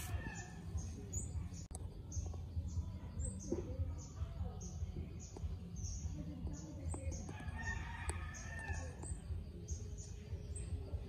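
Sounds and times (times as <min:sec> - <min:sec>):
rooster crowing: 0:00.0 - 0:00.6.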